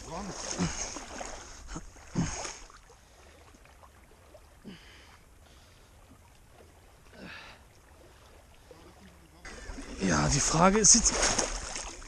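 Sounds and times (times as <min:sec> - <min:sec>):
water sloshing while wading: 0:00.0 - 0:12.0.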